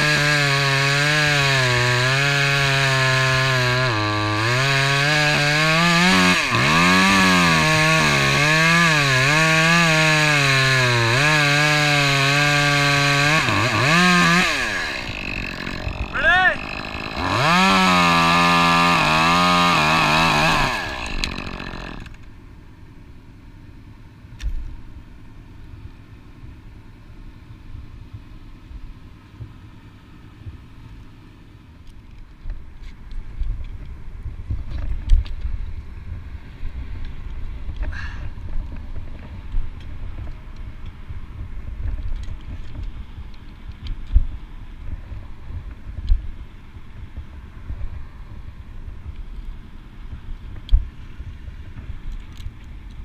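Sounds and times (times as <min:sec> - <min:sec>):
chainsaw cutting wood: 0:00.0 - 0:22.2
wind rumble on microphone: 0:32.5 - 0:53.0.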